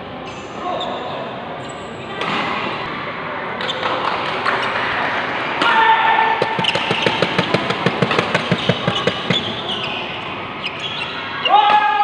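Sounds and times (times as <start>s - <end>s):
racket hitting shuttlecock: 6.4s - 9.6s.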